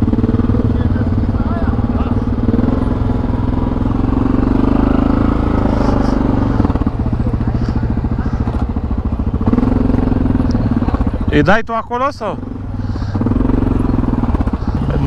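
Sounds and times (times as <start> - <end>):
atv engine running: 0.0 - 15.0.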